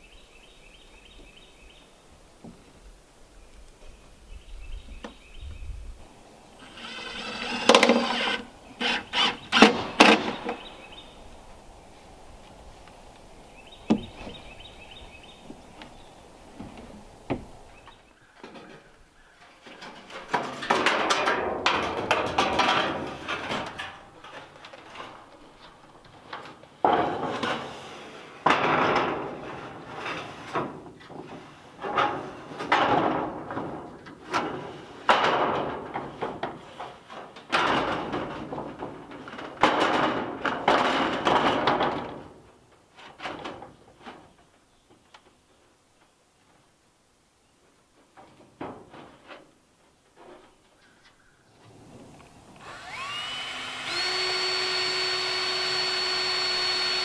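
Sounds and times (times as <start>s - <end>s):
corrugated metal scraping and rattling: 6.6s - 11.1s, 16.6s - 44.6s, 48.0s - 50.8s.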